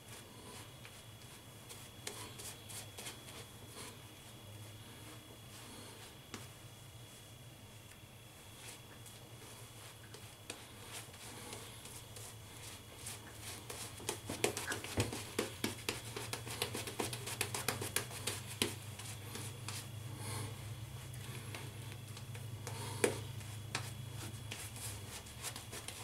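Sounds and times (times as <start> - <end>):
shaving brush bristle strokes: 0.0 - 6.1, 8.6 - 19.9, 22.8 - 26.0
faint low hum: 0.0 - 26.0.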